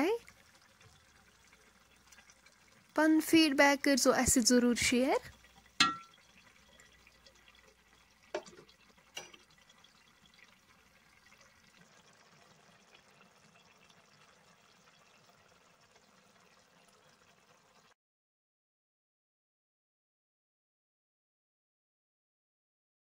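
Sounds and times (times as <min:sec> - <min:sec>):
curry bubbling in a pot: 0:00.0 - 0:18.0
ladle knocking against pot: 0:05.8 - 0:06.1, 0:08.3 - 0:09.4.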